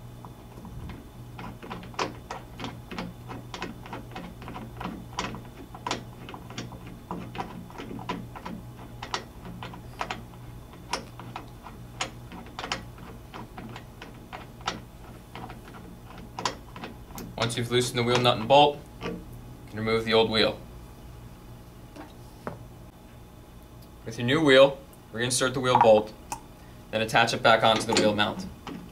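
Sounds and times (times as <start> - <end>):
steady low hum: 0.0 - 28.9.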